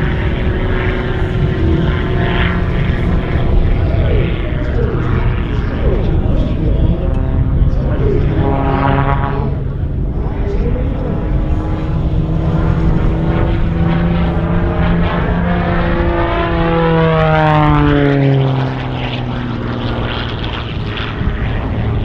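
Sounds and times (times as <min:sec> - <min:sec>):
propeller plane engine droning: 0:00.0 - 0:22.0.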